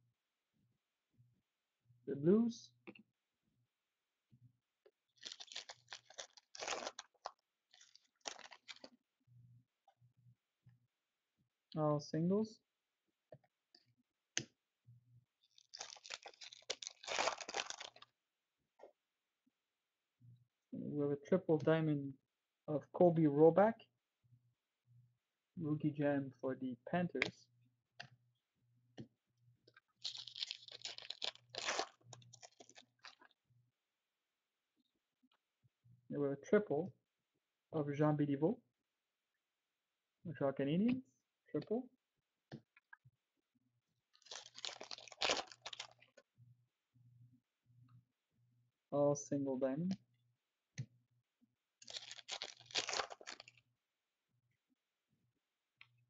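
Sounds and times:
foil wrapper crinkling and tearing: 5.2 - 8.9, 15.4 - 18.0, 30.0 - 33.3, 44.2 - 46.1, 51.8 - 53.6.

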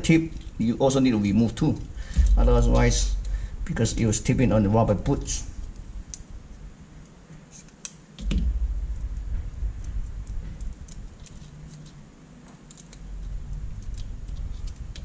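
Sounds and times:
low handling thump: 2.1 - 3.6, 8.2 - 10.7.

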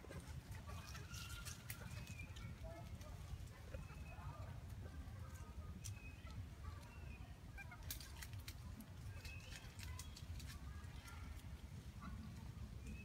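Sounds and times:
faint high chirping calls: 5.3 - 8.3, 9.0 - 10.4.

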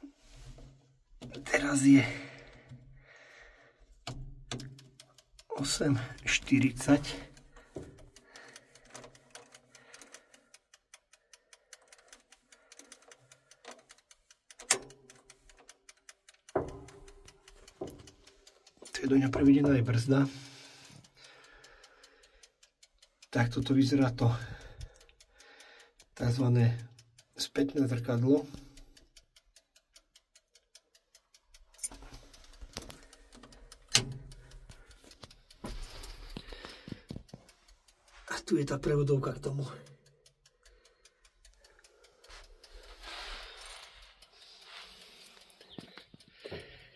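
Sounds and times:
clockwork ticking rapidly: 1.2 - 46.9
sharp click: 11.8 - 19.8, 31.6 - 37.7.

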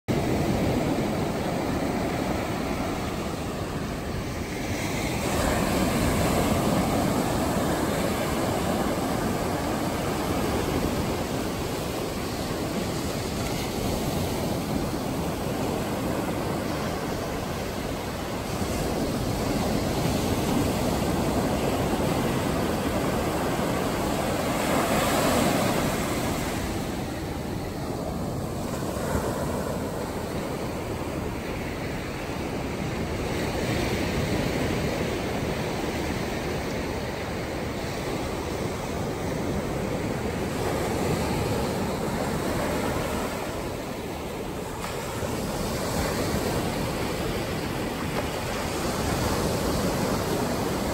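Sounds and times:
ocean surf breaking on shore: 0.1 - 50.9.

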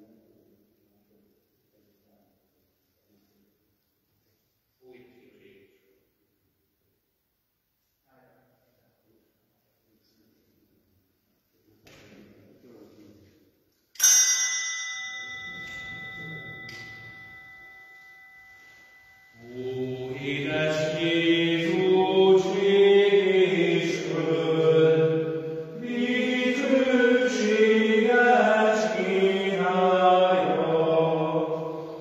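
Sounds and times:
small church bell ringing: 14.0 - 22.6, 30.4 - 32.0
slow chant-like singing: 18.9 - 32.0.

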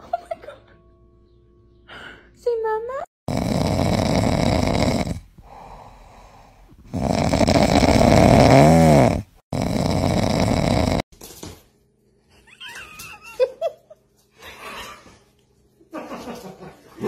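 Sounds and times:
puppy snoring: 3.3 - 5.6, 6.8 - 11.1.

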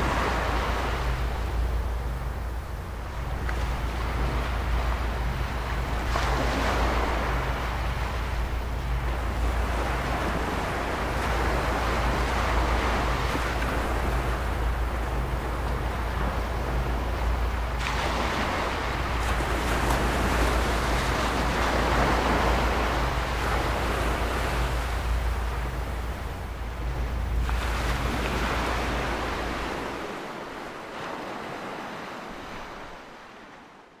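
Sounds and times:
faint pulsing beat: 0.0 - 30.0
low steady hum: 0.0 - 31.6.

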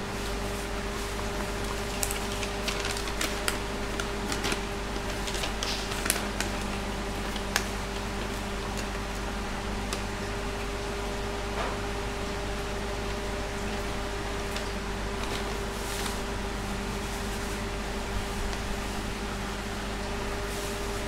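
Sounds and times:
steady low hum: 0.0 - 21.0
paper crinkling: 0.4 - 9.2, 14.4 - 16.3.

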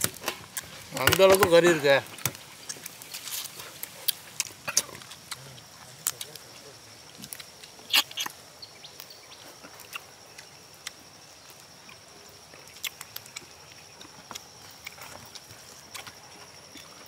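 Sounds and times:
chewing: 2.1 - 6.4, 9.4 - 11.0, 11.7 - 17.0.

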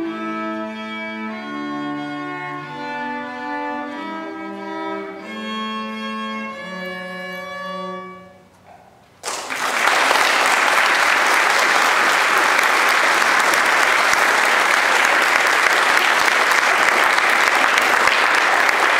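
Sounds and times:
violin and cello duet: 0.0 - 8.4
audience applauding: 9.2 - 18.9.

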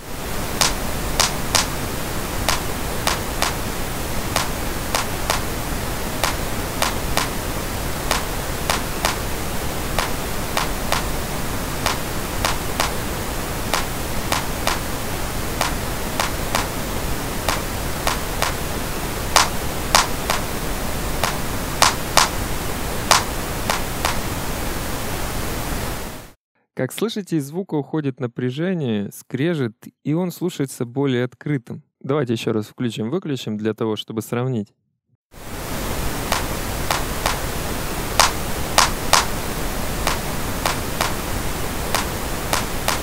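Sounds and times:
pink noise hiss: 0.0 - 26.4, 35.4 - 43.0
clap sample: 0.6 - 1.8, 2.5 - 3.7, 4.4 - 5.6, 6.2 - 7.5, 8.1 - 11.2, 11.8 - 13.1, 13.7 - 14.9, 15.6 - 16.8, 17.4 - 18.6, 19.3 - 20.5, 21.2 - 22.4, 23.1 - 24.3, 36.3 - 37.5, 38.2 - 39.3, 40.1 - 41.3, 41.9 - 43.0.

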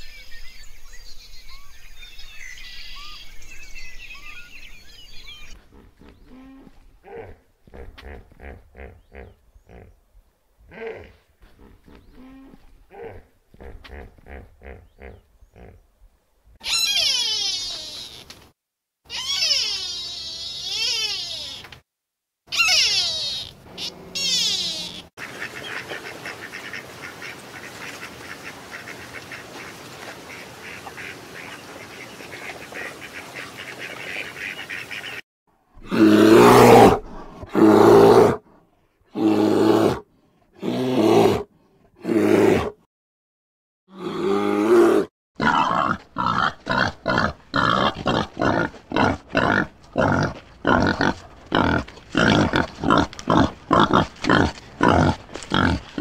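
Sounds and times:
animal grunting calls: 5.6 - 10.0, 10.7 - 15.8, 43.9 - 56.0
animal rasping: 45.4 - 56.0.

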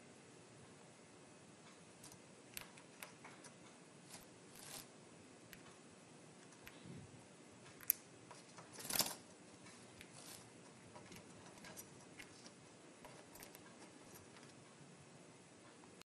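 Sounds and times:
faint ticks and clicks: 1.6 - 5.8.

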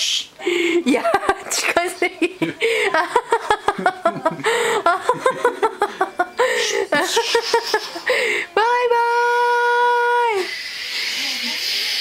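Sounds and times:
high-pitched laughter: 7.0 - 8.1.

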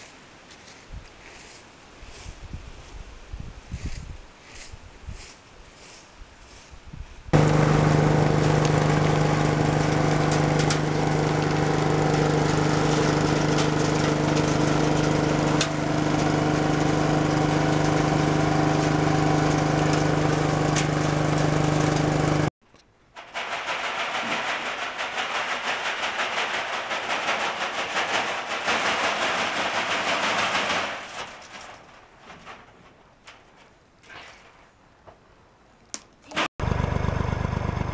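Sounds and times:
small petrol engine running: 7.4 - 22.5, 36.3 - 37.9
nuts rattling on wire-mesh screen: 23.2 - 34.6.

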